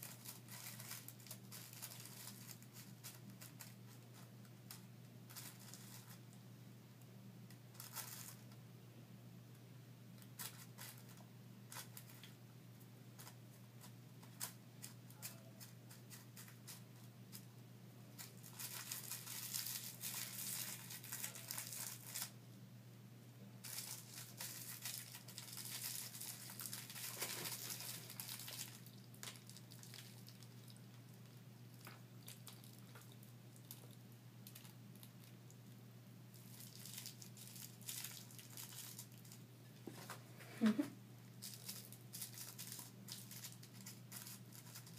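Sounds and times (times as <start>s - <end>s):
dry herb crackling: 0.0s - 6.2s, 18.2s - 22.4s, 23.6s - 35.5s, 36.3s - 39.4s, 41.4s - 44.9s
rolling paper crinkling and rustling: 0.0s - 6.4s, 7.7s - 8.6s, 10.2s - 12.4s, 18.2s - 22.4s, 23.6s - 30.8s, 36.4s - 40.2s, 41.4s - 44.9s.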